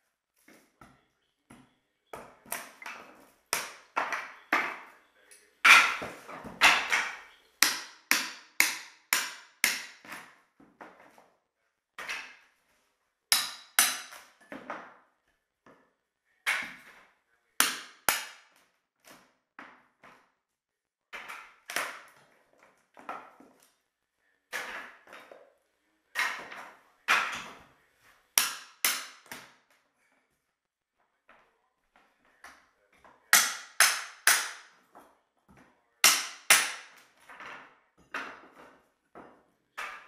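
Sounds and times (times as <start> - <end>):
hammer striking wood floor: 3.6 - 4.9, 5.7 - 10.4, 13.3 - 14.9, 17.6 - 18.5, 28.4 - 29.5, 33.3 - 34.8, 36.0 - 40.0.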